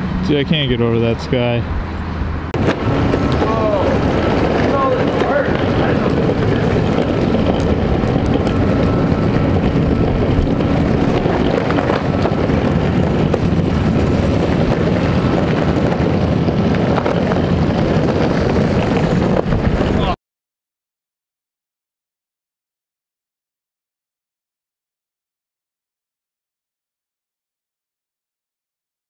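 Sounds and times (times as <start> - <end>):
electric longboard wheel and motor rumble: 0.0 - 20.2
wind buffeting microphone: 0.0 - 20.2.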